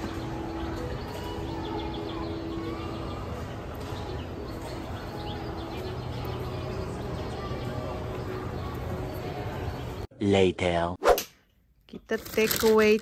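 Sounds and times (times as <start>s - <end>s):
distant crowd voices: 0.0s - 10.1s.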